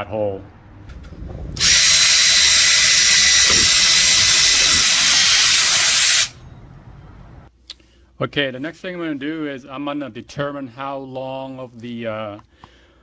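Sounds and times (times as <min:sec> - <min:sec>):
drill boring through plastic pipe: 0:01.6 - 0:06.4.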